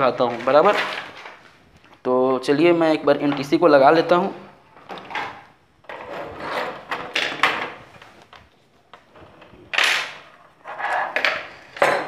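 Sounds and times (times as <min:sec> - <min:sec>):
metal scraping on workbench: 0:05.9 - 0:07.1.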